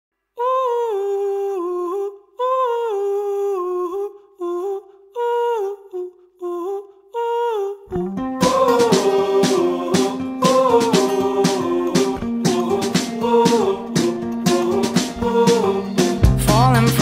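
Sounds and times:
band with bass: 0:16.0 - 0:17.0.

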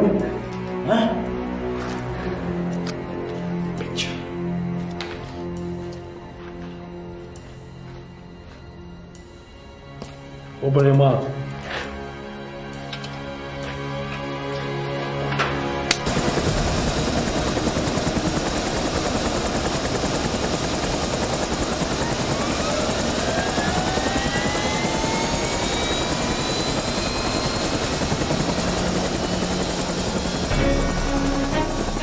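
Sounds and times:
helicopter engine whine: 0:12.0 - 0:32.0
helicopter rotor beat: 0:12.0 - 0:32.0.

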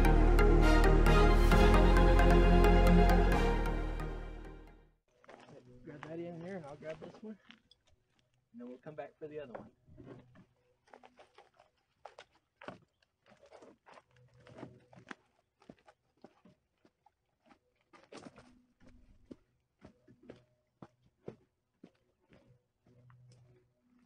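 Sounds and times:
footsteps on gravel: 0:05.1 - 0:24.0.

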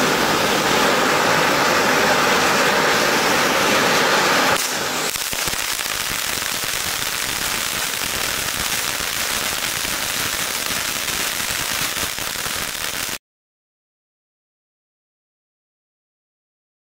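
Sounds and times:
firework fountain crackling: 0:00.0 - 0:13.2.

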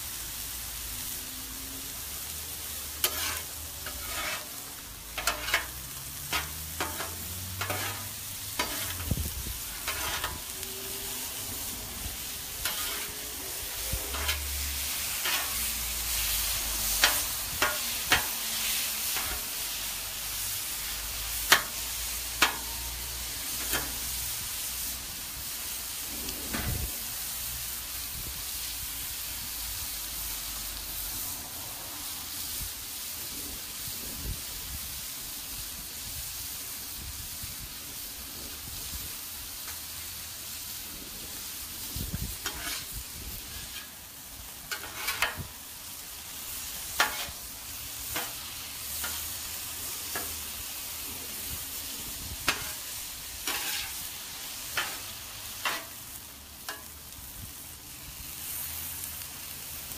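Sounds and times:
chicken sizzling on griddle: 0:00.0 - 0:59.9
spatula scraping a griddle: 0:01.8 - 0:27.8, 0:39.6 - 0:57.0.

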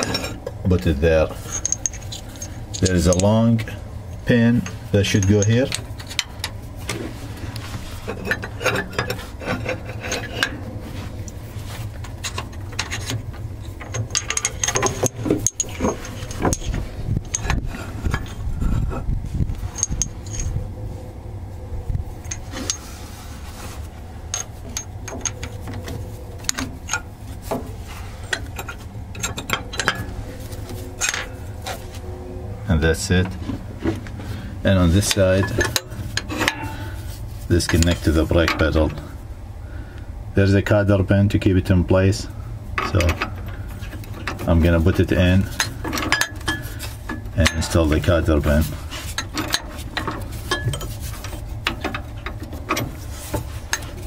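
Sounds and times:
metal clinks and scraping: 0:00.0 - 0:20.7, 0:22.1 - 0:39.2, 0:42.8 - 0:54.0
steady low rumble: 0:00.0 - 0:54.0
hands rubbing against hoses: 0:22.5 - 0:24.1.

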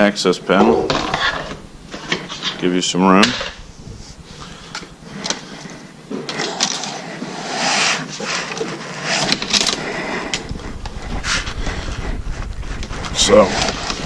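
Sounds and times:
low rumble: 0:00.8 - 0:02.2, 0:02.9 - 0:05.9, 0:10.0 - 0:14.0
fabric rubbing on microphone: 0:01.1 - 0:05.9, 0:06.9 - 0:14.0.

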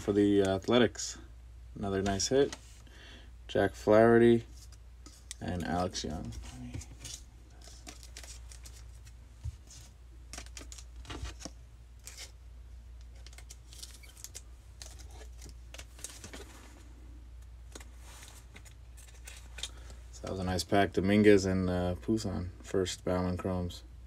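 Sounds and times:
steady low hum: 0:00.0 - 0:24.0
cards and wrappers rustling: 0:04.4 - 0:12.4, 0:13.0 - 0:17.0, 0:17.6 - 0:20.4.

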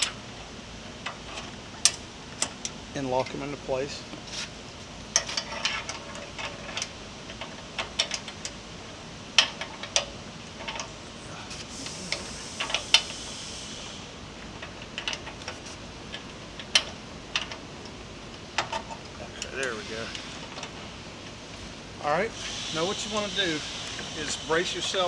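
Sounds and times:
metal pins clicking and clinking: 0:05.1 - 0:08.6, 0:09.4 - 0:11.0
faint hiss: 0:11.2 - 0:14.3, 0:21.6 - 0:25.0.

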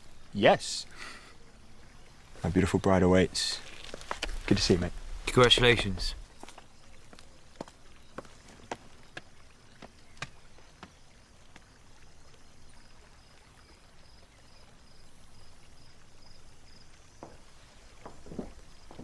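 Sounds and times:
footsteps on hard ground: 0:03.6 - 0:11.6, 0:17.2 - 0:19.0.

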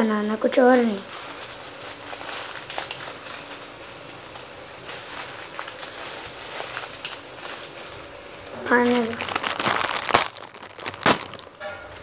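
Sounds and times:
plastic packet crinkling: 0:00.9 - 0:08.1, 0:08.7 - 0:11.6.

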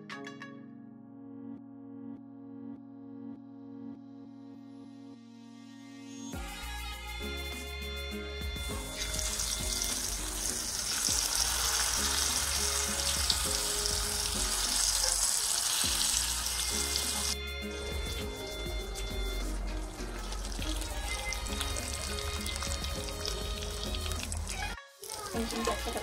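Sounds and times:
background music: 0:00.0 - 0:26.0
fish sizzling in hot oil: 0:08.7 - 0:26.0.

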